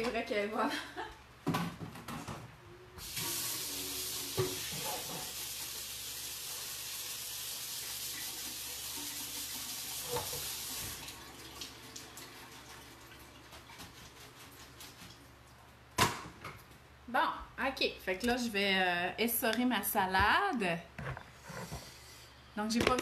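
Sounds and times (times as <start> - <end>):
faucet running into sink: 3.0 - 13.5.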